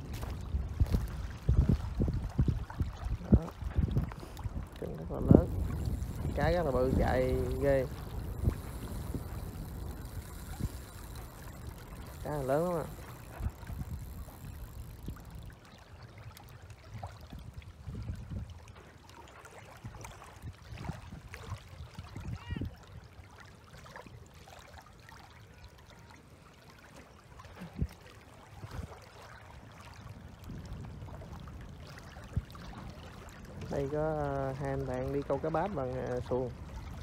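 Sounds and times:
low wind rumble: 0.0s - 18.8s, 28.6s - 37.0s
small waves lapping on stony shore: 0.0s - 37.0s.

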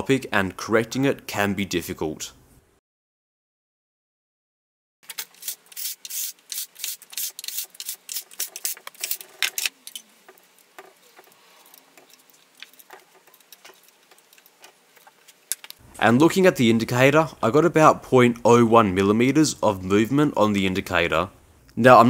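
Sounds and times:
hex key scraping and clicking: 5.0s - 15.8s.

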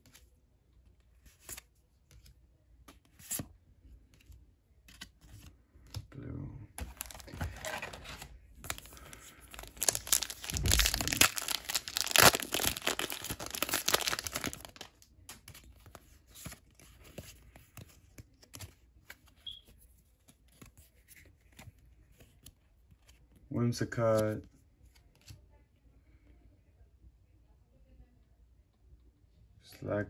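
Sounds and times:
cards being handled: 1.0s - 6.1s, 6.8s - 23.5s
foil wrapper tearing and crinkling: 8.7s - 15.0s.

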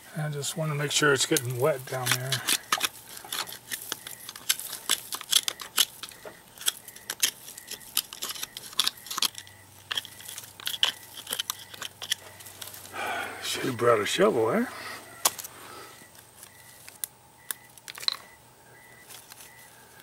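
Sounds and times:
dry twigs crackling and snapping: 1.3s - 13.0s, 15.2s - 15.5s, 16.1s - 18.2s, 19.0s - 20.0s.

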